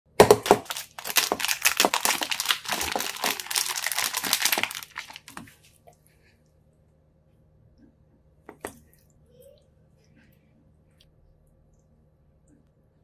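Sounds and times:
plastic wrap crinkling: 0.2s - 5.7s.

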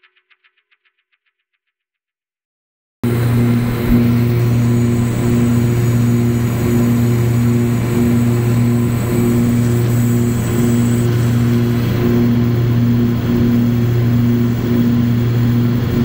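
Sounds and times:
light airplane engine drone: 3.0s - 16.0s.

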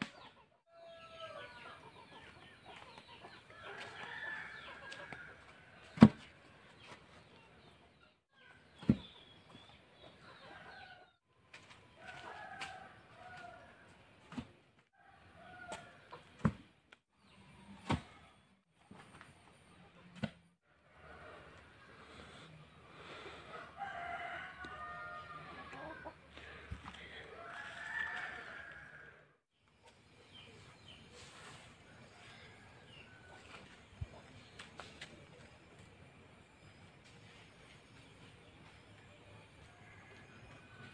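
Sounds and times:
chickens clucking: 1.2s - 4.1s, 25.4s - 27.3s
rooster crowing: 23.5s - 26.1s, 27.3s - 29.3s.

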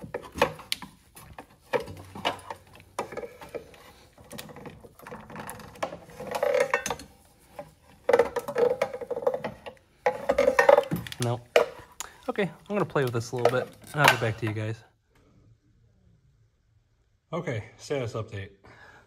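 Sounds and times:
metal pipe clicking and knocking: 0.0s - 12.1s
metal pipe scraping: 1.2s - 11.8s.

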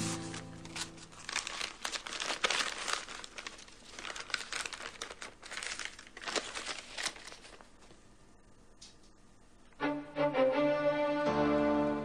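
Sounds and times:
paper rustling and crinkling: 0.0s - 8.0s.

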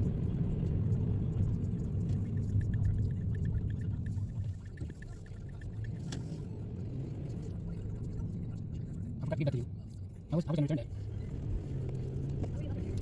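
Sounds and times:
car engine and road rumble: 0.0s - 13.0s
faint rapid ticking: 0.1s - 6.6s.

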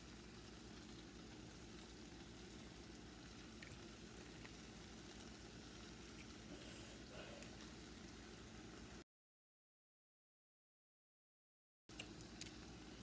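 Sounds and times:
faint sizzle from frying pan: 0.0s - 9.0s, 11.9s - 13.0s.

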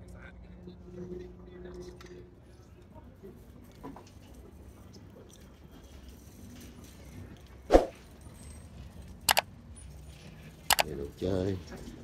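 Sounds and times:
quick clicks: 9.3s - 9.5s.

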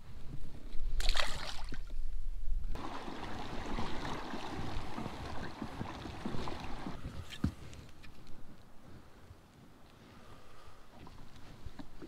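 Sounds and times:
water lapping against kayak: 2.8s - 7.8s.

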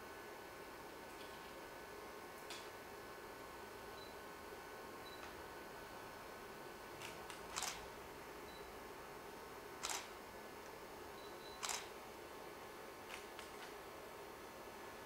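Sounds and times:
steady low hiss: 0.0s - 15.0s
sharp double clicks: 7.0s - 7.8s, 11.6s - 11.9s.

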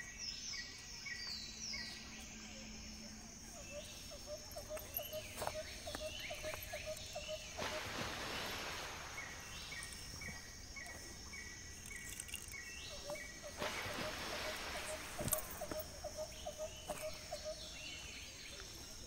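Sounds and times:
birds chirping: 0.0s - 19.0s
insects calling: 0.0s - 19.0s
high gliding bird calls: 11.7s - 18.4s.

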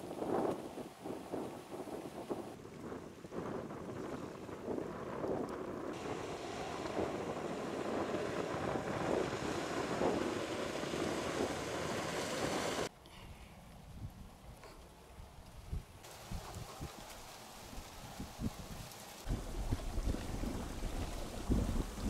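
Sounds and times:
wind buffeting microphone: 0.0s - 12.9s, 15.2s - 22.0s
waves washing against rocks: 6.0s - 12.9s, 16.1s - 22.0s.

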